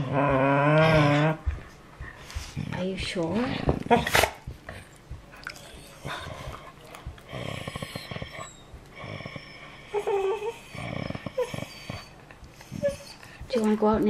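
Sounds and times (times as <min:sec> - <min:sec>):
dog whining: 0:00.0 - 0:01.6, 0:03.8 - 0:14.0
dog grumbling and moaning: 0:00.0 - 0:14.0.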